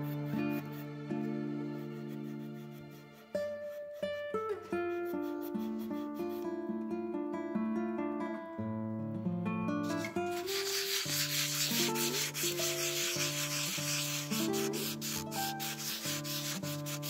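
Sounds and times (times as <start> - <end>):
sponge rubbing back and forth: 5.0 - 6.4, 9.9 - 17.0.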